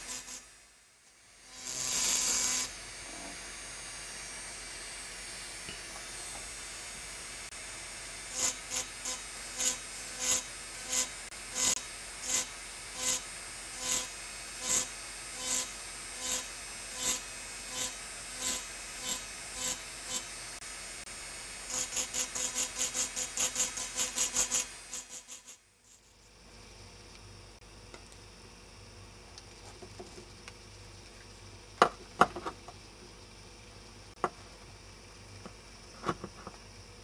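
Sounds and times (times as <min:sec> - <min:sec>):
engraving drill grinding glass: 0:00.0 - 0:00.6, 0:01.2 - 0:03.9, 0:08.2 - 0:20.6, 0:21.6 - 0:26.0.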